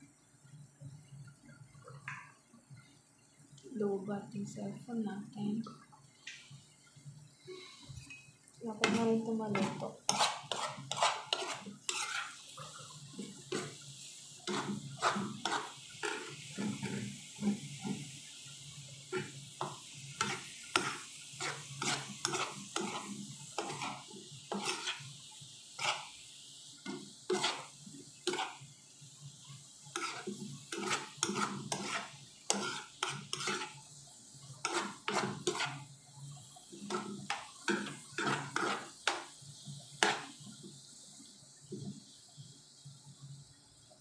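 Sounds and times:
food sizzling in a pan: 0.0s - 44.0s
metal spoon scraping a pan: 7.8s - 18.2s, 19.1s - 25.2s, 25.8s - 26.2s, 26.8s - 28.7s, 29.9s - 33.9s, 34.6s - 35.9s, 36.8s - 39.3s, 40.0s - 40.3s.

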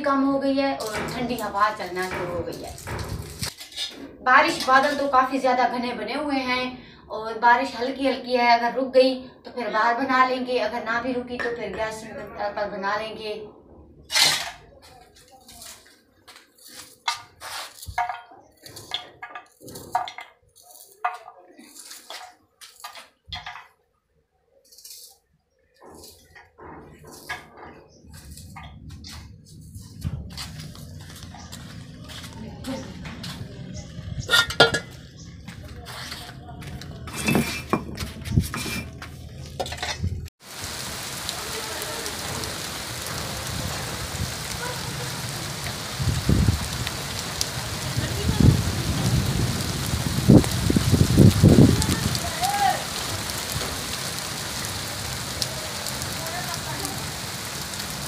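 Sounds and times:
rain falling on earth: 0.9s - 3.5s, 28.2s - 34.3s, 40.4s - 58.0s
low rumble: 28.0s - 35.8s
knocks and clinks: 34.2s - 35.0s.

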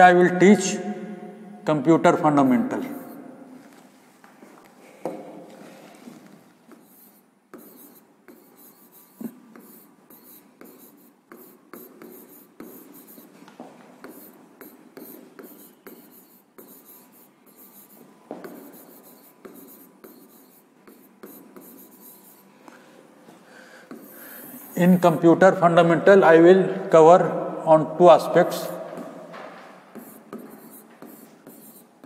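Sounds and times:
stylus scratching on glass: 6.7s - 13.4s, 14.0s - 22.5s, 29.9s - 32.0s.

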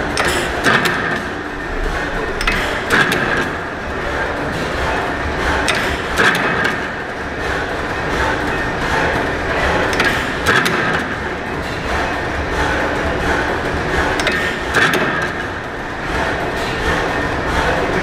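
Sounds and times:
engine sharp knocks: 0.0s - 3.6s, 4.6s - 17.7s
gas engine clattering: 0.0s - 18.0s.

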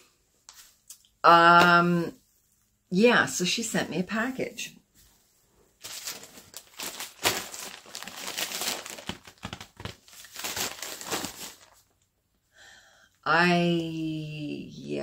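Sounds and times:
plastic mailer bag crinkling: 5.8s - 12.1s.

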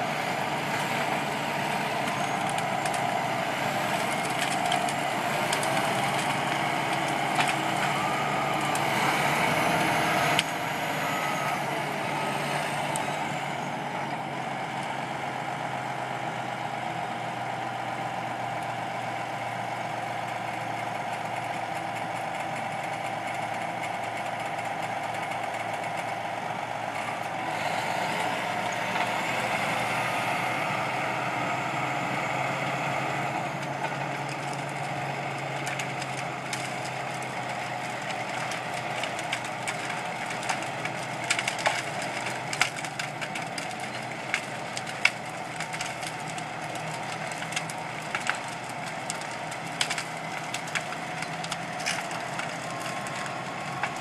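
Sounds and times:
bulldozer diesel engine: 0.0s - 54.0s
wood cracking: 0.1s - 13.8s, 31.4s - 54.0s.

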